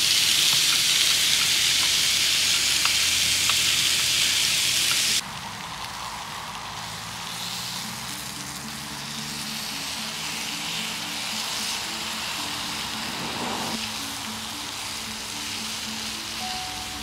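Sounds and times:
steady hiss: 0.0 - 17.0
soft background music: 5.4 - 17.0.

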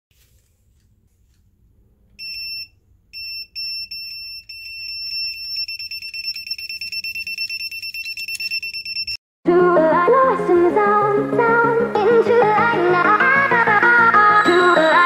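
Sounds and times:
electronic bite alarm beeping: 2.2 - 9.2.

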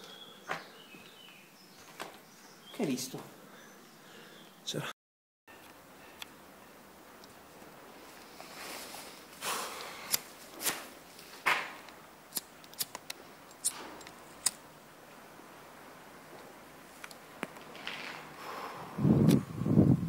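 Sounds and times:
low steady hiss: 5.5 - 20.0
footsteps crunching on debris: 17.4 - 18.4.

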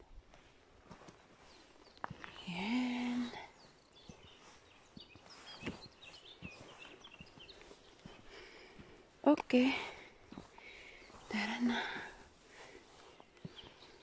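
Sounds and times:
small birds chirping: 0.1 - 14.0.

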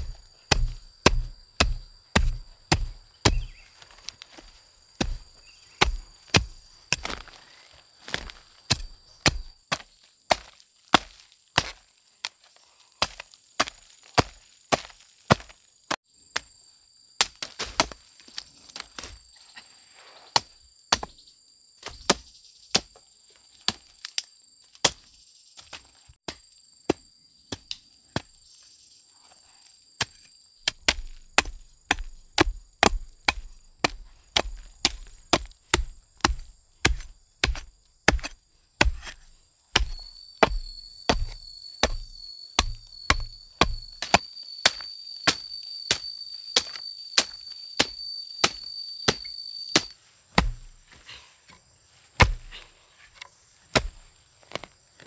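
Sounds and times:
blade chopping wood: 0.0 - 7.4, 8.1 - 11.8, 13.0 - 15.6, 17.2 - 18.0, 20.4 - 21.2, 30.0 - 51.0, 52.2 - 54.7.

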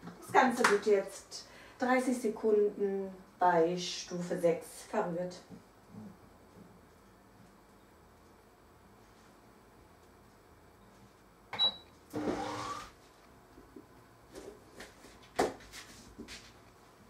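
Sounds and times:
click with short high beep: 11.6 - 11.8.

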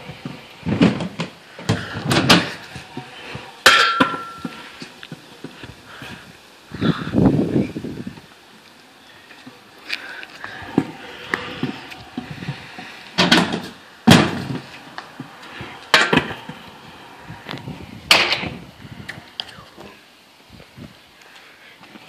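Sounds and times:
scooter wheels rolling on concrete: 0.0 - 22.0
scooter deck slamming down: 13.2 - 14.6, 18.1 - 18.6.

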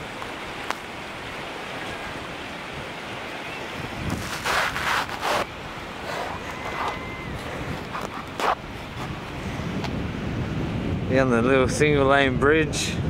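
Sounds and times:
wind hiss on microphone: 0.0 - 13.0.

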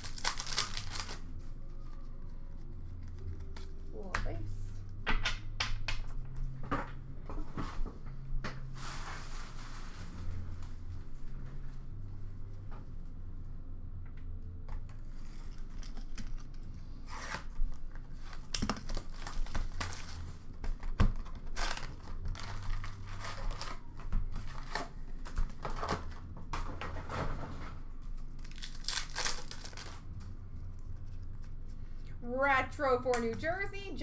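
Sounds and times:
cardboard and wrappers ripping: 0.0 - 1.3, 17.1 - 20.3, 21.2 - 26.1, 28.3 - 30.1.

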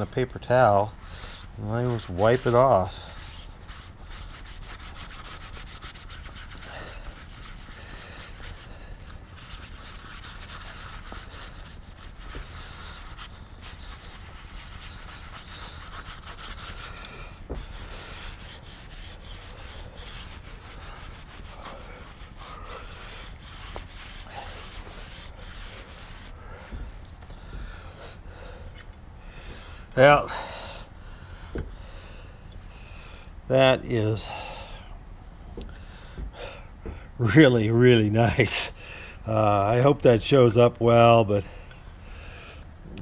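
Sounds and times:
paper towel rubbing on metal: 0.0 - 26.9.

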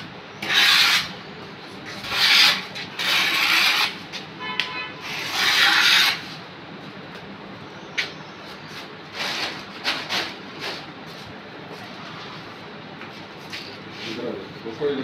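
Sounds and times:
trowel scraping mortar: 0.4 - 1.1, 1.9 - 4.0, 5.0 - 6.3.

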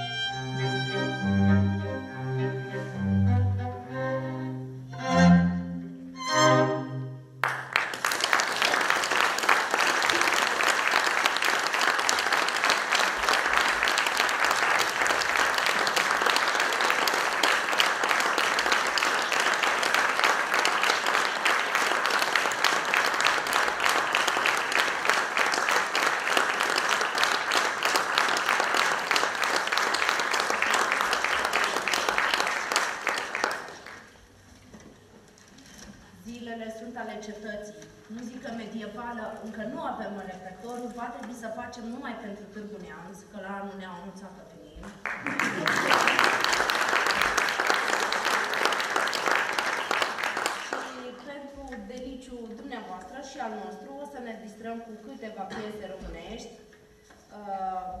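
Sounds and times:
string quartet chord: 0.0 - 7.4
audience applauding: 7.4 - 34.4, 44.9 - 51.1.

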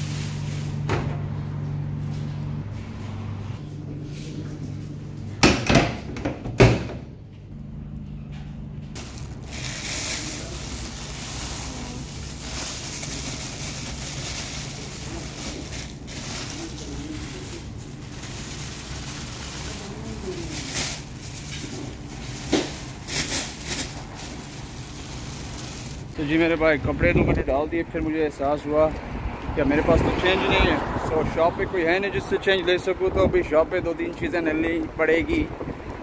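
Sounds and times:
washing machine door slamming shut: 5.4 - 7.1
plastic bag rustling: 9.0 - 26.2.

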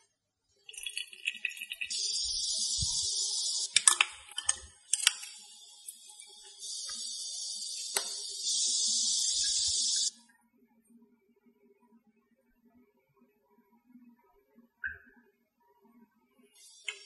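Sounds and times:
liquid pouring into glass bottles: 0.6 - 5.4.

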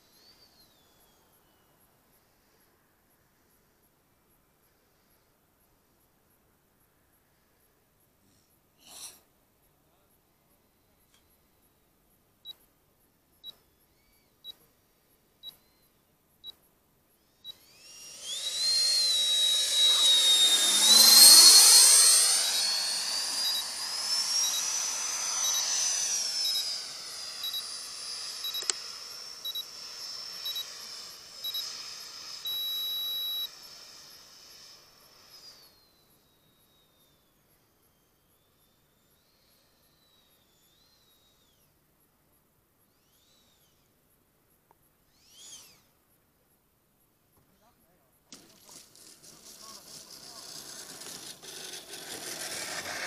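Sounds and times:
model jet whine passing: 17.3 - 37.2, 48.3 - 53.0
short electronic beeps: 32.4 - 33.5.

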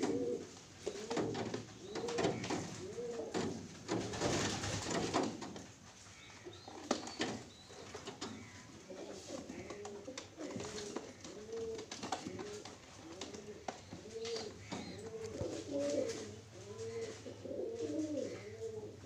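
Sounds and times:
pigeons cooing: 0.0 - 5.4, 6.5 - 19.0
handling rustle: 8.0 - 18.8.

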